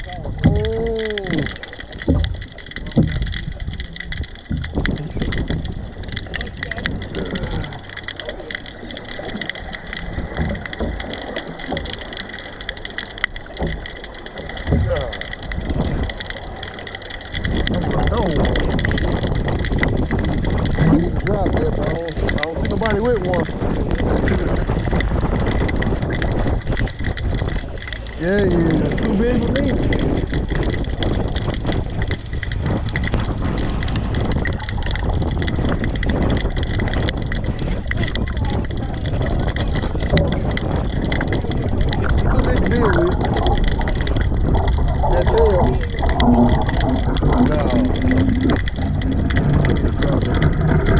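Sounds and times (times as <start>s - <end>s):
fishing reel ticking: 0.0s - 50.9s
light clicks: 0.0s - 50.9s
surf: 0.0s - 50.9s
water washing and splashing: 0.0s - 50.9s
wind rumbling on microphone: 0.0s - 50.9s.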